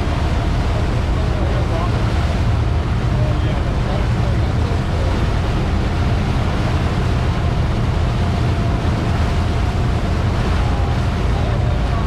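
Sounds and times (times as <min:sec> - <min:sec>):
boat engine running: 0:00.0 - 0:12.0
wake rushing: 0:00.0 - 0:12.0
wind buffeting microphone: 0:00.0 - 0:12.0.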